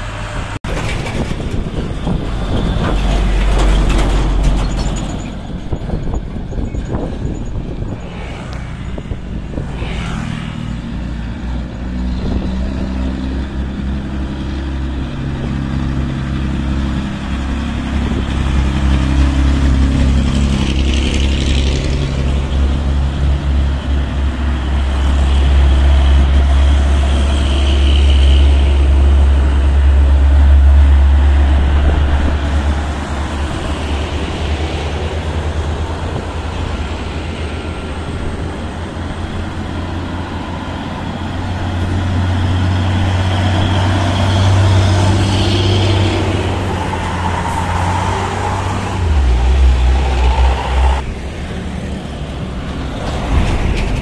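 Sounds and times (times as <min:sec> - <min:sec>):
diesel trucks climbing: 0:00.0 - 0:09.8, 0:10.7 - 0:54.0.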